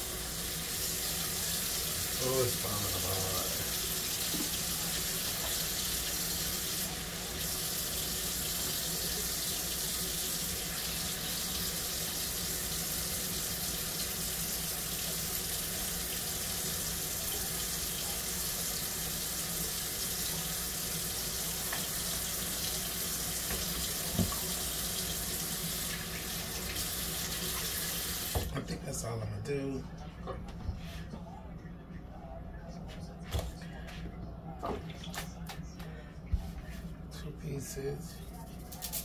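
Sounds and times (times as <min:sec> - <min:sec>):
faucet running into steel sink: 0:00.0 - 0:28.5.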